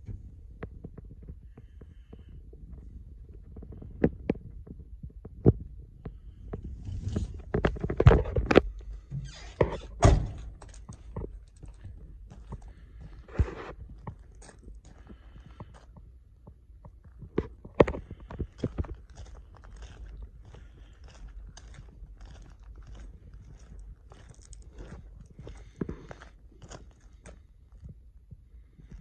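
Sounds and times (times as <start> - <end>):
knocks and scrapes: 0.0 - 14.7
footsteps on gravel: 17.4 - 27.5.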